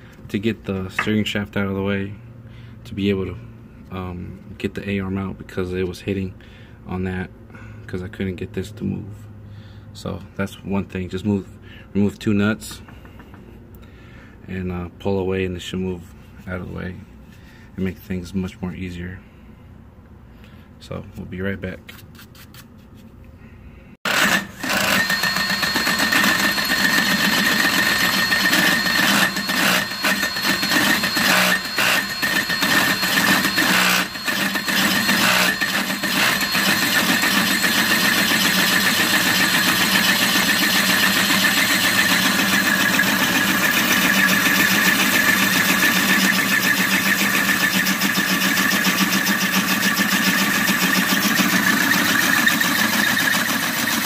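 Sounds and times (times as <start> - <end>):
hole saw grinding on metal: 24.0 - 54.0
electric drill whining: 24.1 - 54.0.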